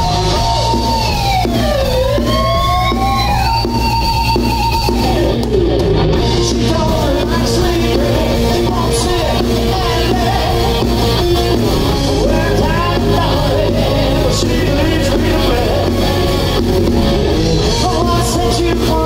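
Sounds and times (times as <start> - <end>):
person singing lead vocal: 0.0 - 1.4, 6.2 - 16.6, 17.4 - 19.0
bass guitar: 0.0 - 19.0
electric guitars: 0.0 - 19.0.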